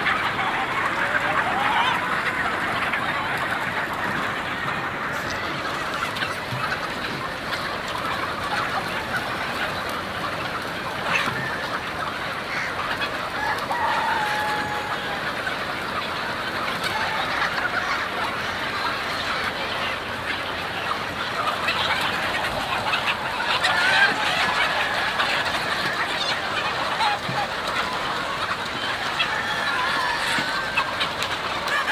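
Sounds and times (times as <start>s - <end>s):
chickens clucking and squawking: 0.0s - 31.9s
rooster crowing: 13.4s - 15.2s.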